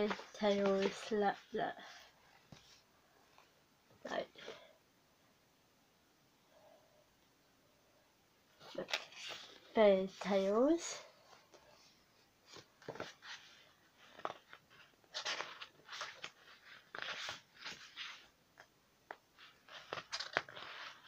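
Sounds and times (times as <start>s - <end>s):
book pages being turned: 0.0s - 2.8s, 8.6s - 10.6s, 11.2s - 21.0s.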